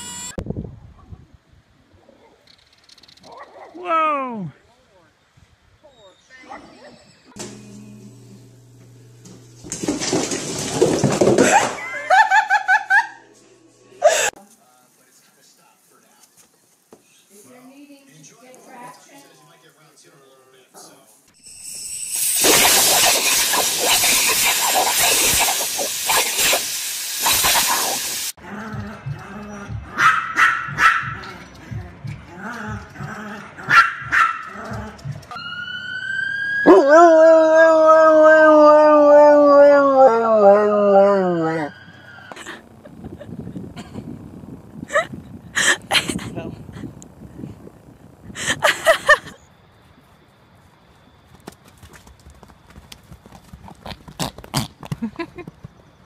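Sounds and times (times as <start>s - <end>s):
person laughing: 11.4s - 13.2s, 14.0s - 14.4s, 42.3s - 44.2s, 44.8s - 47.0s, 48.3s - 49.4s, 54.9s - 55.6s
small dog yapping: 29.9s - 31.3s, 33.6s - 34.8s
dog howling: 32.4s - 42.2s.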